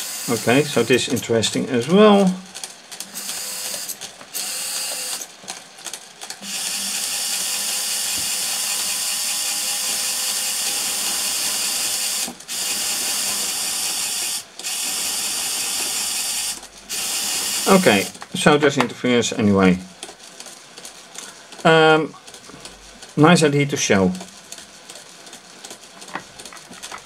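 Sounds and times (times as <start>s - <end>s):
electric gear motors whirring: 0.0s - 5.3s, 6.4s - 18.4s.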